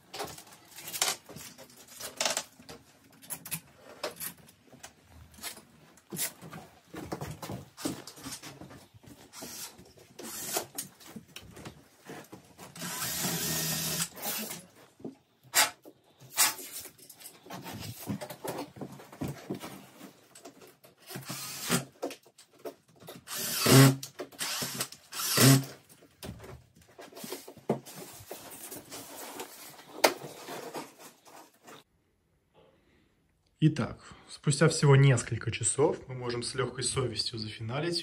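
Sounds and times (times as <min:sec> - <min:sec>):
cordless drill running: 0:09.3 - 0:10.7, 0:12.8 - 0:14.6, 0:21.2 - 0:21.8, 0:23.3 - 0:25.7
rustling: 0:25.8 - 0:31.9.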